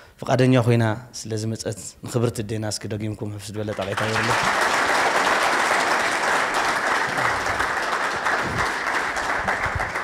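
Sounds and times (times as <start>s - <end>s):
audience applauding: 3.7s - 10.0s.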